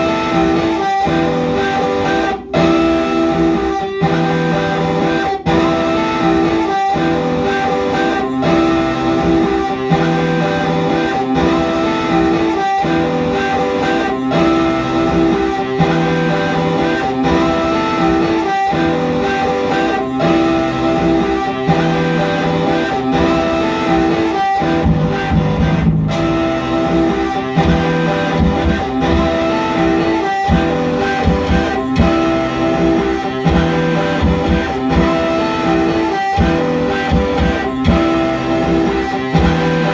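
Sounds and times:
live electric guitar and keyboard music: 0.0 - 39.9.

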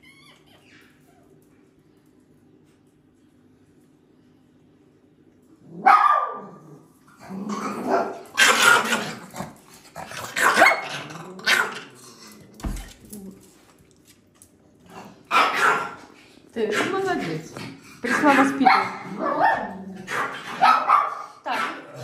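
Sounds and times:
dog barking: 5.8 - 6.5, 7.8 - 9.0, 10.4 - 10.9, 15.3 - 16.0, 18.6 - 21.8.

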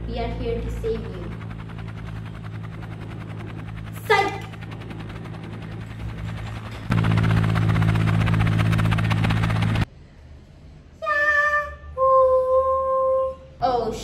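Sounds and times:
helicopter rotor chop: 0.0 - 9.9.

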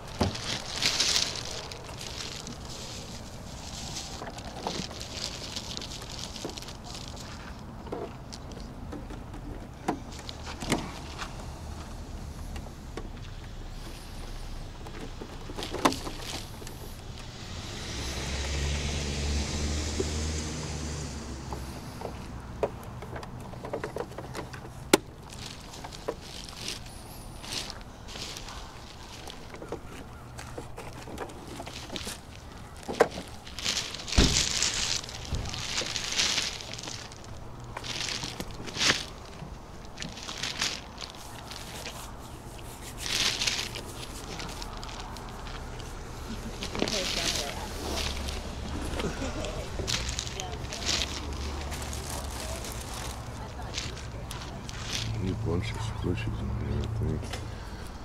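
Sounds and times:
footsteps: 0.0 - 8.7, 23.0 - 58.0
rustling: 0.0 - 58.0
car passing by: 17.2 - 22.6.

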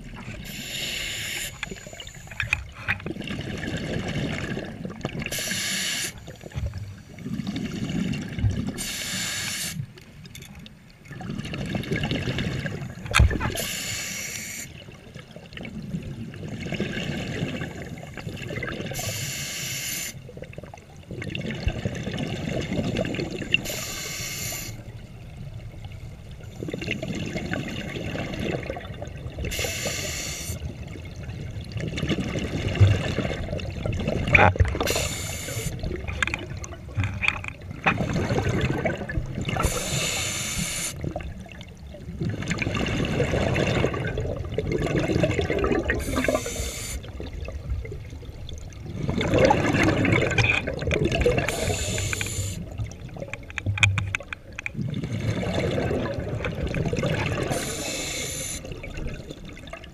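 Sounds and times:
exhaled bubbles rumbling: 0.0 - 0.7, 1.9 - 5.4, 6.2 - 8.8, 10.1 - 13.7, 14.8 - 19.0, 20.2 - 23.7, 24.9 - 30.0, 30.6 - 59.9
regulator inhalation hiss: 0.5 - 2.3, 5.3 - 6.2, 8.8 - 9.8, 13.6 - 14.7, 19.0 - 20.2, 23.6 - 24.8, 29.5 - 30.6, 34.9 - 35.8, 39.6 - 41.0, 46.0 - 47.1, 51.5 - 52.7, 57.5 - 58.7.

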